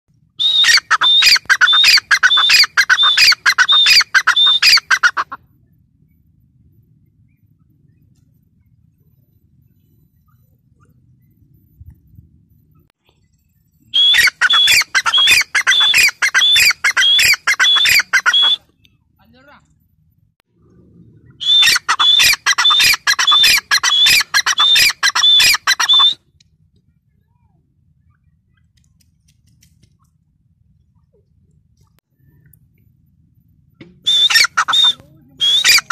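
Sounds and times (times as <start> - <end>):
francolin calling: 0.4 - 5.4, 13.8 - 18.9, 21.2 - 26.2.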